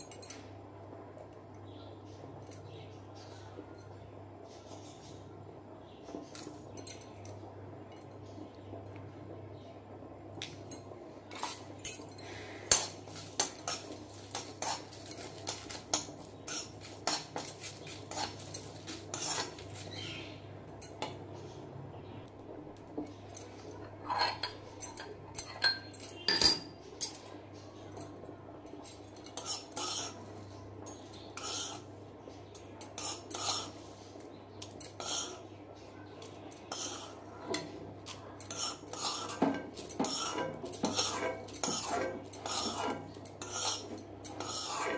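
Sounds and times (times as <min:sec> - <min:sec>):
metal spoon scraping a pan: 0:11.3 - 0:20.2, 0:23.8 - 0:27.2, 0:29.2 - 0:30.3, 0:30.9 - 0:32.0, 0:32.7 - 0:35.5, 0:36.2 - 0:44.9.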